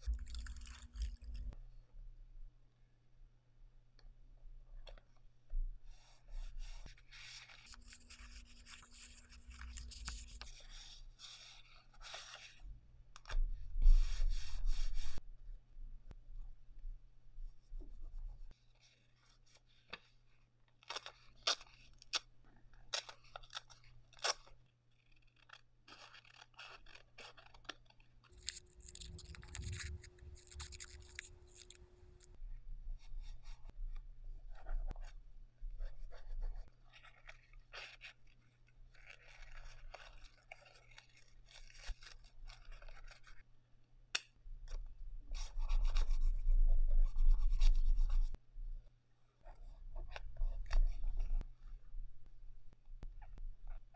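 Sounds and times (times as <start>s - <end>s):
scissors cutting paper: 25.1s - 32.3s.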